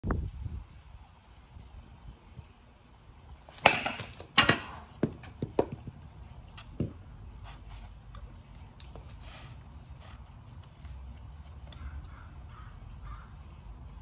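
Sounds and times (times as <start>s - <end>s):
baseball bat and balls clacking: 3.4s - 7.2s.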